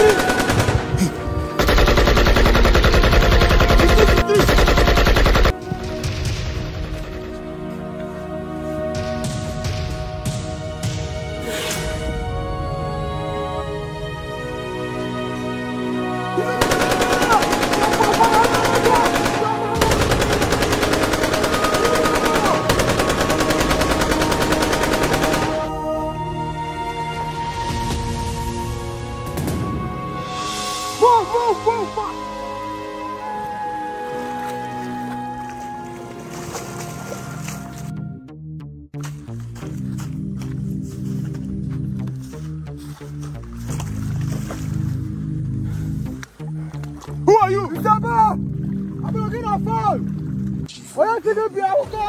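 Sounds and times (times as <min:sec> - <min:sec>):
background music: 0:00.0 - 0:52.0
automatic gunfire: 0:01.6 - 0:05.5, 0:16.6 - 0:25.7.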